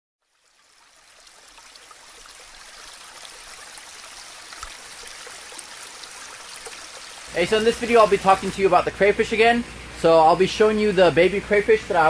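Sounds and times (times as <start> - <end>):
water drips and splashes: 0.2 - 8.8
water trickling into a tank: 0.2 - 9.0.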